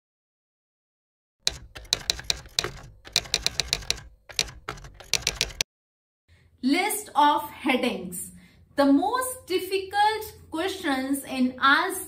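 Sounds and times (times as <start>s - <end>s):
keyboard keystroke clicks: 1.5s - 5.6s.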